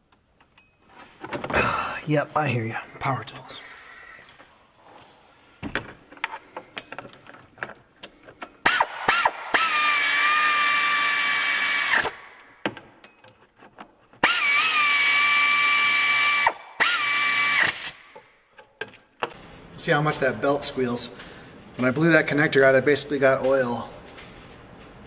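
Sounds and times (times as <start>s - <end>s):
power tool whining: 8.6s - 12.2s, 14.2s - 18.0s.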